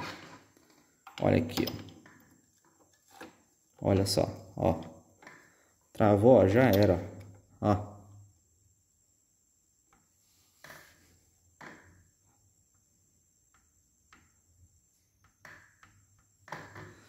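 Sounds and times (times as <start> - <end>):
metal tools clicking and tapping: 1.0 - 3.0, 6.7 - 7.4.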